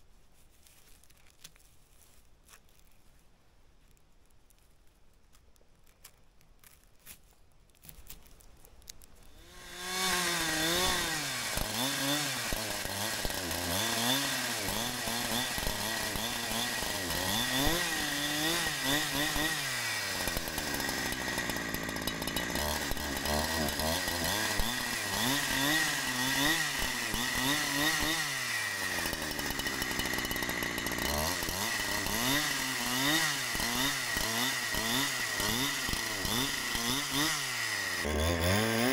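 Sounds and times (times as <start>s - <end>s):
chainsaw cutting log: 9.3s - 38.9s.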